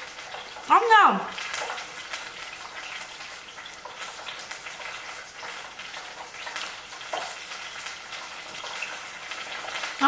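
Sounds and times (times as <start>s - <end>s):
oil sizzling in a frying pan: 0.0s - 10.0s.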